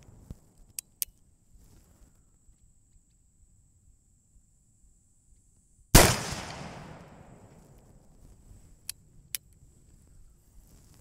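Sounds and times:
revolver gunshot: 6.0s - 7.5s.

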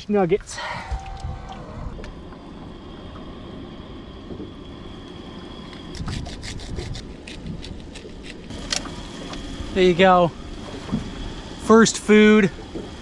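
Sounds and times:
low wind rumble: 0.0s - 13.0s
sharp crackles and clicks: 5.0s - 9.4s.

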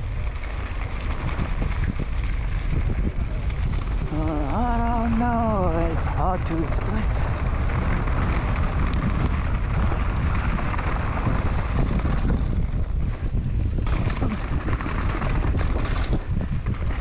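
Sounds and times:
bike knocks and rattles: 0.0s - 17.0s
tyres rolling on dirt trail: 0.0s - 17.0s
wind rushing over microphone: 0.0s - 17.0s.

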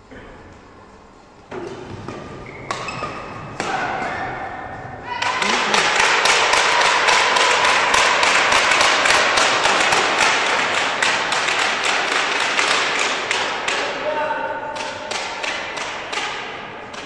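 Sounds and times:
spectators clapping: 5.2s - 14.0s.

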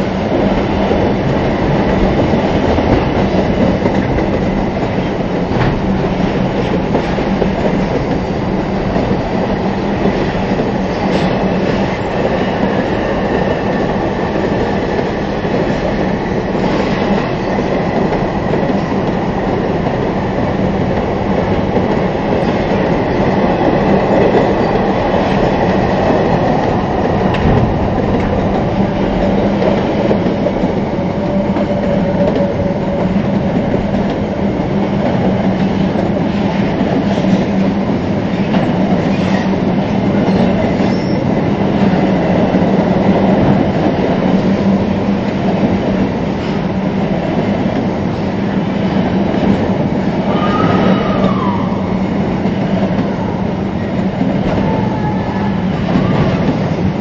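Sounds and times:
steel wheels rumbling on rail: 0.0s - 57.0s.

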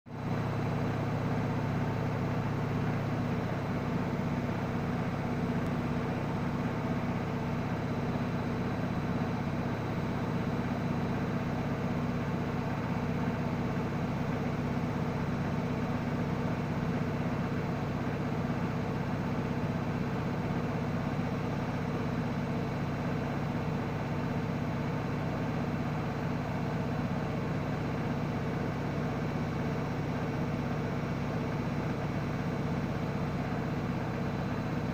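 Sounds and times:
washing machine humming: 0.1s - 34.9s.

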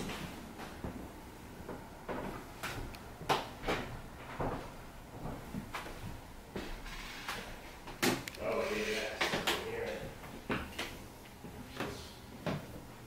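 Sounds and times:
footsteps on wooden floor: 0.0s - 8.0s.

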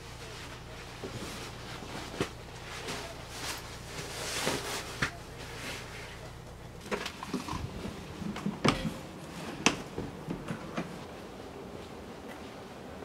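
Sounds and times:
fabric and straps rustling: 0.2s - 6.3s.

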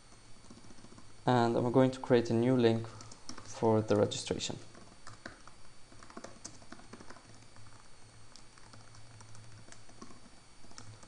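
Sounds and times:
keyboard typing: 0.4s - 1.1s, 2.8s - 3.6s, 4.7s - 11.0s.

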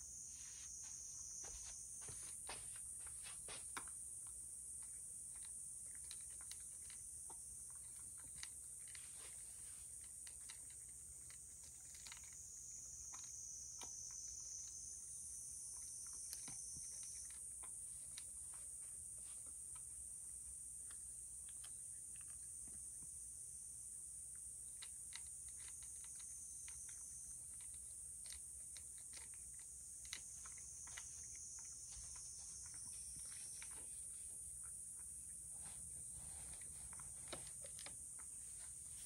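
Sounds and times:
cat crunching dry kibble: 3.7s - 18.8s, 24.3s - 33.8s.

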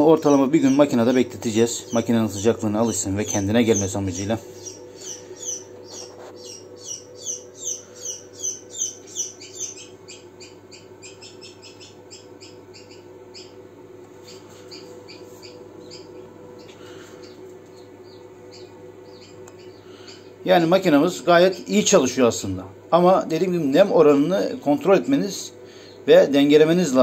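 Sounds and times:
incubator hum: 0.0s - 27.0s
chick peeping: 0.6s - 13.6s, 14.2s - 20.4s.

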